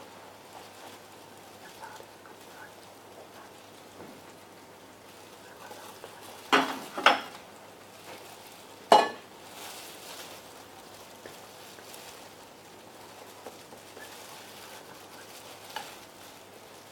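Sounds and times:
metal bowl clanking: 8.9s - 9.3s.

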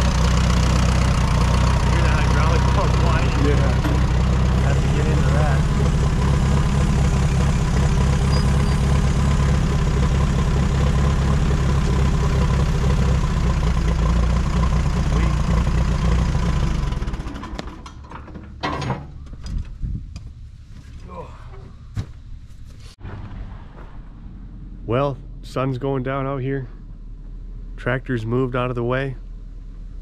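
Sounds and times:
tractor engine running: 0.0s - 20.8s, 21.7s - 30.0s.

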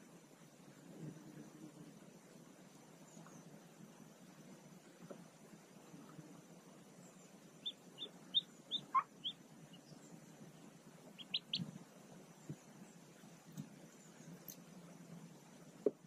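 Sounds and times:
ducklings peeping: 7.6s - 10.0s, 11.0s - 11.8s.

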